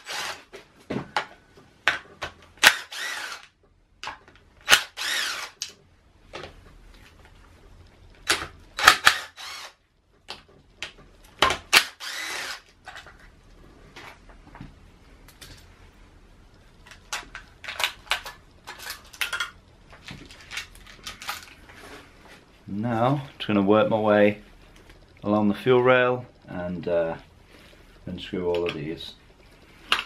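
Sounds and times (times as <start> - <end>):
cordless power tool running: 0.0 - 0.4, 2.7 - 3.5, 4.8 - 5.6, 9.0 - 9.8, 12.0 - 12.6.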